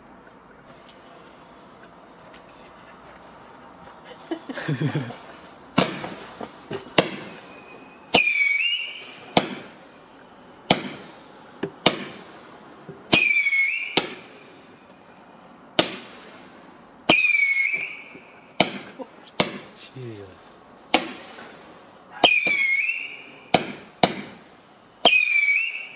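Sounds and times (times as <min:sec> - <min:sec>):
firework bangs: 0:04.5 - 0:25.9
firework whistle dipping in pitch: 0:07.1 - 0:09.4, 0:13.1 - 0:14.2, 0:17.1 - 0:18.3, 0:22.2 - 0:23.4, 0:25.0 - 0:25.9.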